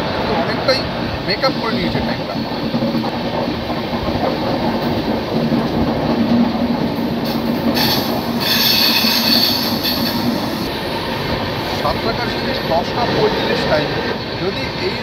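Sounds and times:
train wheels rumbling on rails: 0:00.0 - 0:15.0
high-pitched wheel squeal: 0:07.8 - 0:10.7.

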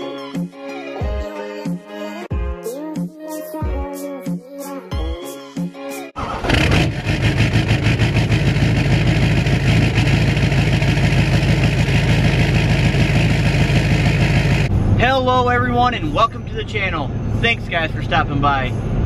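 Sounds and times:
music: 0:00.0 - 0:06.2, 0:15.5 - 0:19.0
diesel engine starting and idling: 0:06.2 - 0:18.3.

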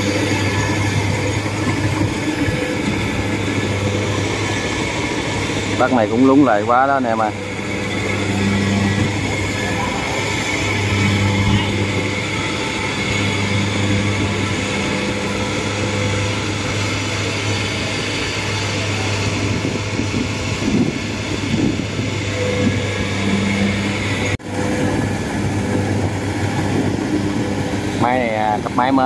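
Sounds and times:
harvester engine humming: 0:00.0 - 0:29.0.

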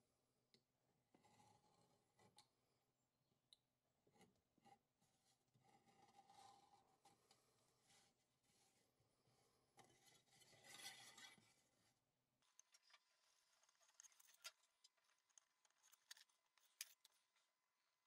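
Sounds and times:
knife scraping along ruler: 0:09.8 - 0:11.6.

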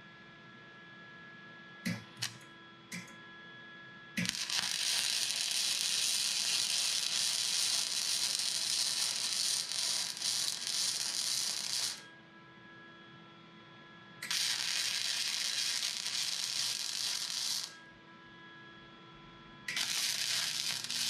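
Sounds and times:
welding arc crackling: 0:01.9 - 0:02.4, 0:04.2 - 0:12.0, 0:14.2 - 0:17.8, 0:19.7 - 0:21.0.

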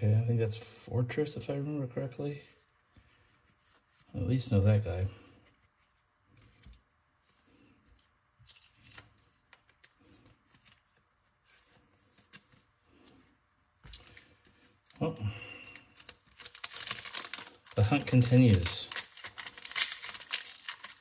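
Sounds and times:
trading cards rustling: 0:08.0 - 0:21.0.

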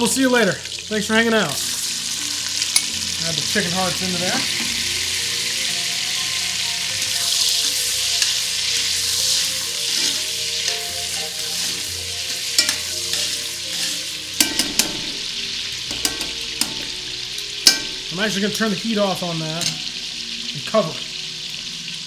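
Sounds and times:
meat sizzling in butter: 0:00.0 - 0:22.0
metal tongs clicking on pot: 0:02.7 - 0:02.9, 0:12.3 - 0:18.1, 0:19.6 - 0:19.9.

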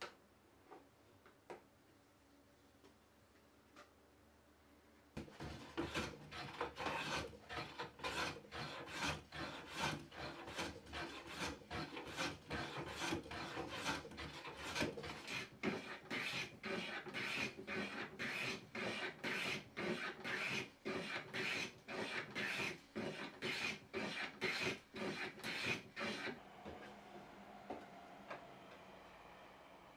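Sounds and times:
hand plane shaving wood: 0:05.2 - 0:26.4.

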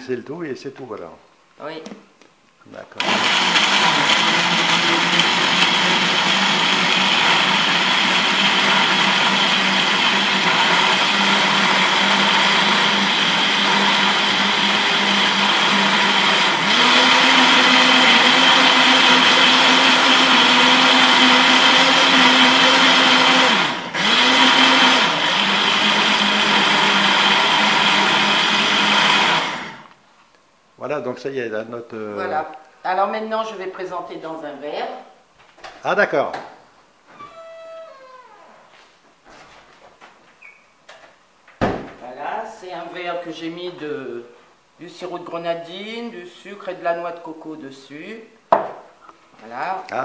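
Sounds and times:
blender motor hum: 0:03.0 - 0:29.9.

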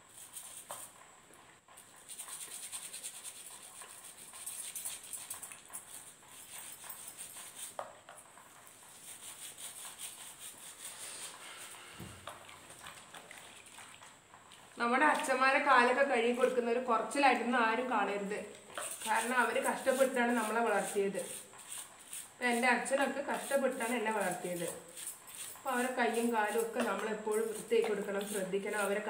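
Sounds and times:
brush scrubbing feet: 0:02.0 - 0:07.8, 0:08.7 - 0:14.6, 0:18.8 - 0:29.0.

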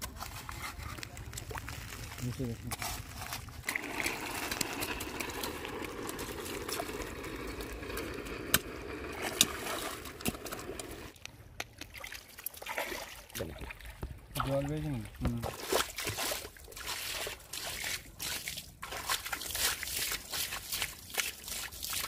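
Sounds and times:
stream water trickling: 0:03.2 - 0:11.2, 0:11.8 - 0:22.0
hands patting wet mud: 0:15.2 - 0:22.0.

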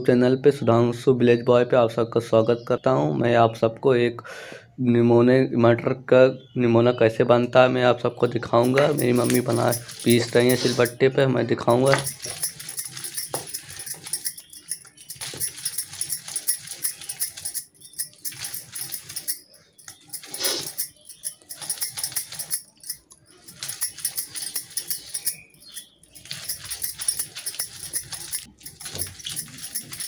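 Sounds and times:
stone roller scraping grinding stone: 0:08.6 - 0:11.0, 0:11.8 - 0:19.3, 0:19.9 - 0:30.0.

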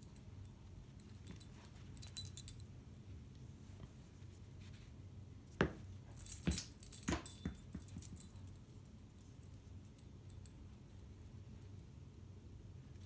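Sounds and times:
dog collar tags jingling: 0:01.0 - 0:02.7, 0:06.1 - 0:08.7.

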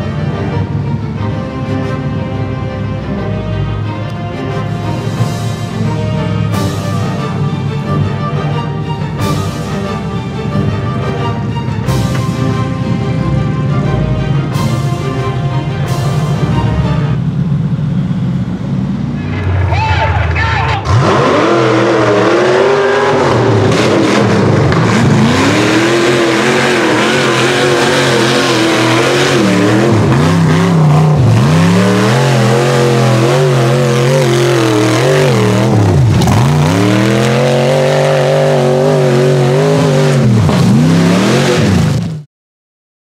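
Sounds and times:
buggy engine revving hard: 0:19.0 - 0:42.2.

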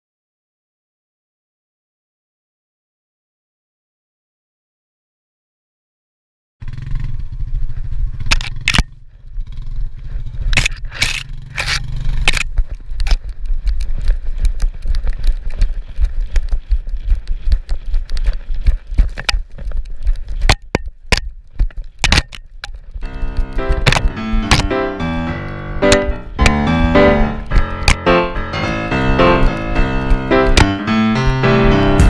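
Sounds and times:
atv engine running: 0:06.6 - 0:32.0.

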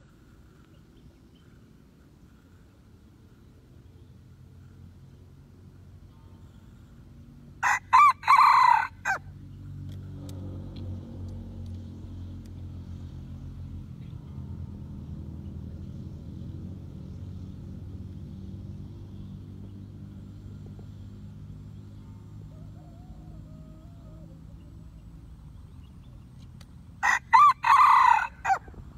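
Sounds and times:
low steady rumble: 0:00.0 - 0:28.9
rooster crowing: 0:07.6 - 0:09.3, 0:22.3 - 0:24.7, 0:27.0 - 0:28.7.

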